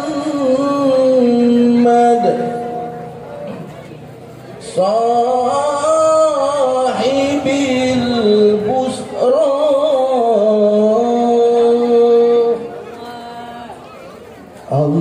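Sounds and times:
person singing devotional chant: 0.0s - 3.0s, 4.6s - 13.6s.

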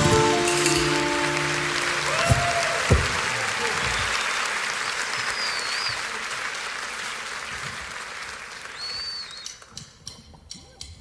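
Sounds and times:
audience applause: 0.0s - 9.5s
short high whistles: 3.9s - 6.0s, 8.7s - 9.6s.

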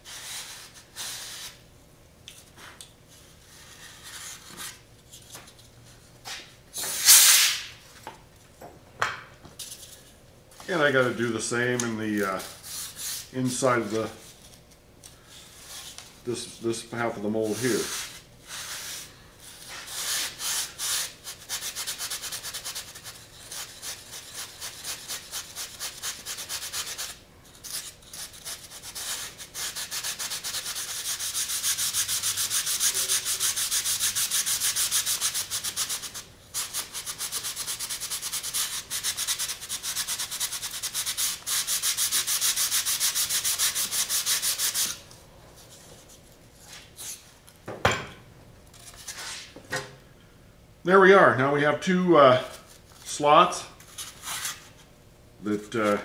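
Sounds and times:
sanding block rubbing foam: 17.5s - 19.1s, 19.7s - 45.0s.

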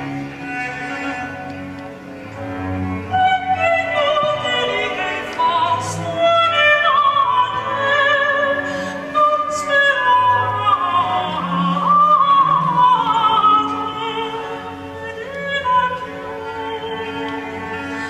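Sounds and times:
bowed strings: 0.0s - 18.0s.

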